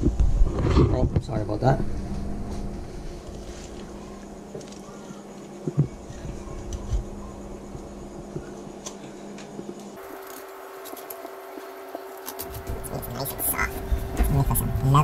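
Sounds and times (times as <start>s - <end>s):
low hum: 0.0s - 5.0s, 10.0s - 15.0s.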